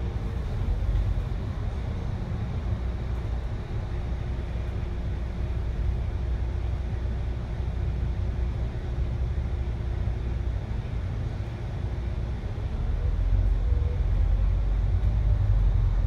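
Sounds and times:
bus engine drone: 0.0 - 16.0.

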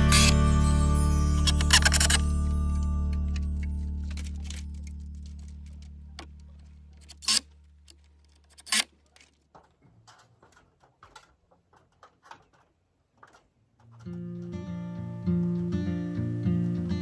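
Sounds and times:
background music: 0.0 - 5.8, 14.2 - 17.0.

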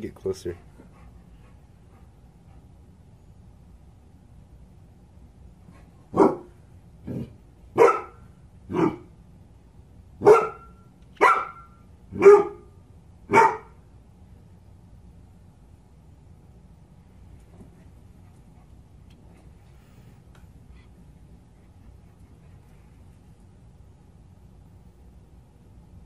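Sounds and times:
dog barking: 6.1 - 6.5, 7.8 - 9.1, 10.2 - 12.7, 13.3 - 13.8.

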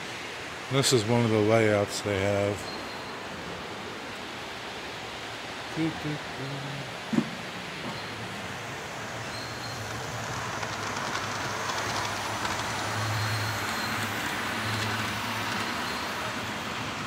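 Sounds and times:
background hiss: 0.0 - 17.0
model train motor hum: 8.8 - 17.0
wheels ticking: 9.1 - 17.0.

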